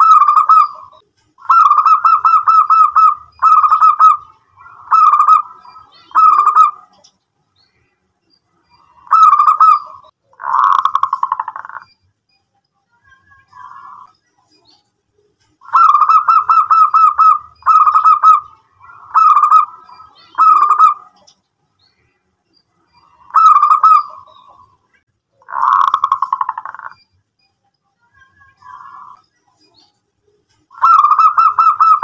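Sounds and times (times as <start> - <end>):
dove cooing: 0.0 - 7.0, 8.9 - 11.8, 15.6 - 21.3, 23.0 - 24.7, 25.4 - 27.0, 30.7 - 32.0.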